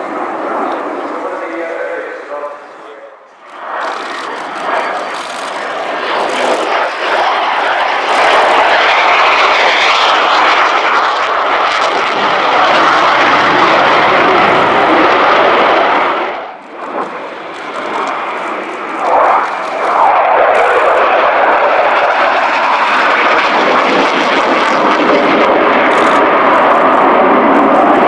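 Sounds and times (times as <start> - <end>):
jet roar: 0.0 - 28.0.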